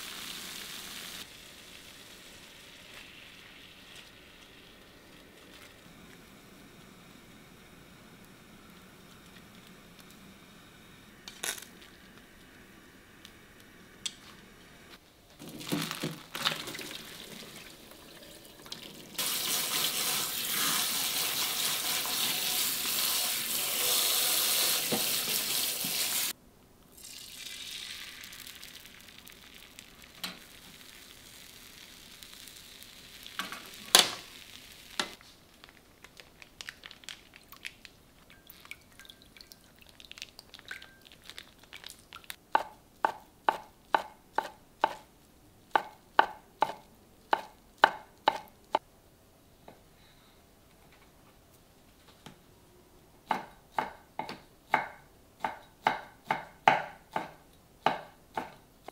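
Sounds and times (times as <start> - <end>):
kitchen tap running: 16.4 - 26.3.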